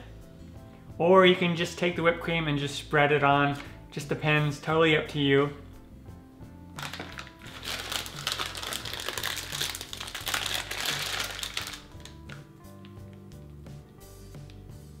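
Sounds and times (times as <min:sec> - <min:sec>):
plastic bag crinkling: 0:06.8 - 0:12.5.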